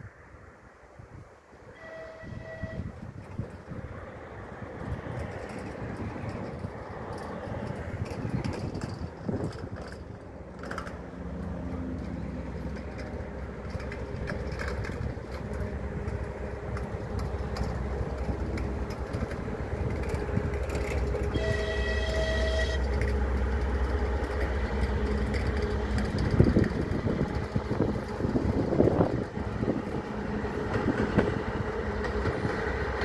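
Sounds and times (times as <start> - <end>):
locomotive engine and rail rumble: 0.0 - 33.0
train horn blast: 1.7 - 3.2, 19.8 - 33.0.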